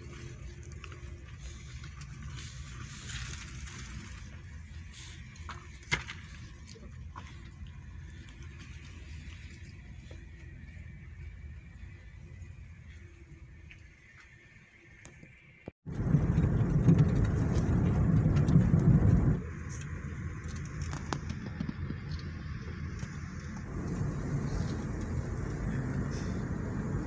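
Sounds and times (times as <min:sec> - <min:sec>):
car road rumble inside cabin: 0:15.9 - 0:27.0.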